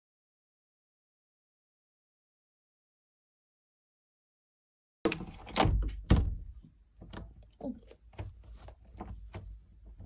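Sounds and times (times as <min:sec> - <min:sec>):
doorknob turning and rattling: 0:05.1 - 0:07.4
knocks against door: 0:05.6 - 0:06.6.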